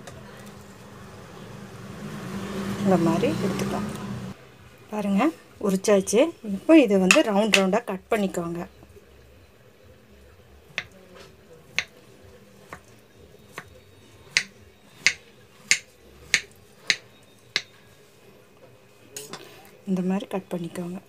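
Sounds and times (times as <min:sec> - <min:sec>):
blade tapping wooden cutting board: 0:10.7 - 0:11.0, 0:11.7 - 0:12.0, 0:13.5 - 0:17.8
knife slicing yam: 0:12.6 - 0:17.7.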